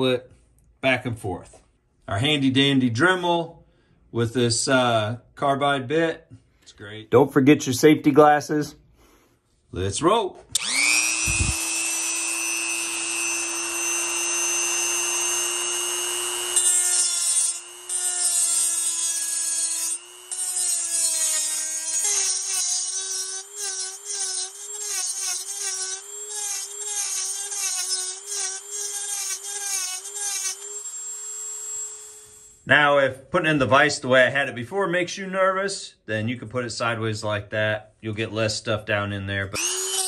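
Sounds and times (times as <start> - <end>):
rotary tool grinding metal: 10.6 - 32.6, 39.6 - 40.0.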